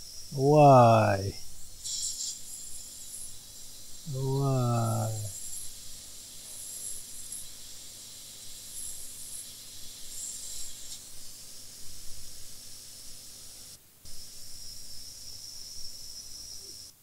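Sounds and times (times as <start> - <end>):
steady high whine: 0.0 - 5.8
hot air blower hiss: 0.0 - 17.0.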